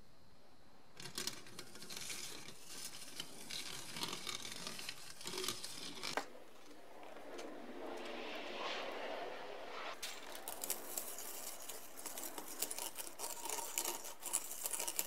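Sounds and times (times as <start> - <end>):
hand-cranked food mincer crunching: 10.4 - 15.0.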